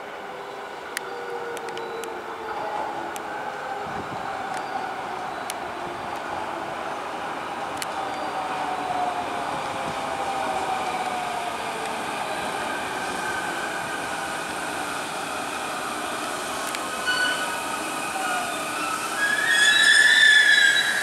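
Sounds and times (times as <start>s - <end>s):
high-pitched brake squeal: 17.0s - 21.0s.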